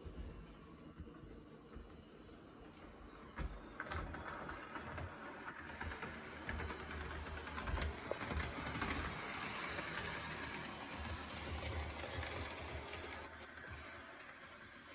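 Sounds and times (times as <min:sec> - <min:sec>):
wheels clicking on rails: 0:02.1 - 0:14.9
model train motor whirring: 0:04.4 - 0:14.9.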